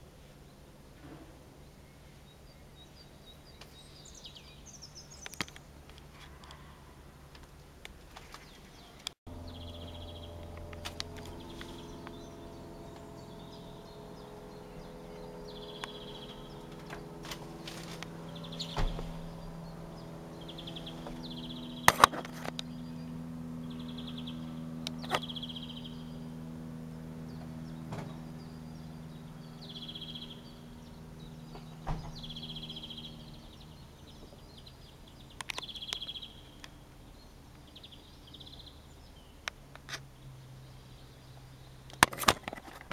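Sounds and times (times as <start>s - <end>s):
propeller aircraft droning: 0.0s - 42.9s
small birds chirping: 0.0s - 42.9s
sharp clicks: 21.9s - 22.8s, 35.4s - 36.8s.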